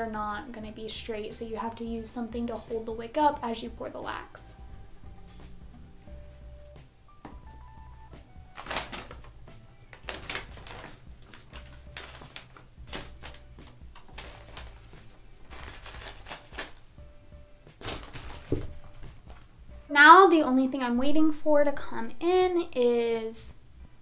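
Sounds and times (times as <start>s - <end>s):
faint background music: 0.0s - 24.0s
packaging rustling and crinkling: 8.4s - 16.9s, 17.7s - 19.5s.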